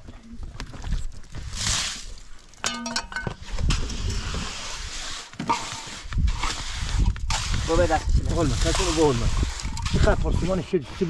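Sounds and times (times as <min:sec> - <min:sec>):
trowel scraping wet cement: 0:03.4 - 0:11.0.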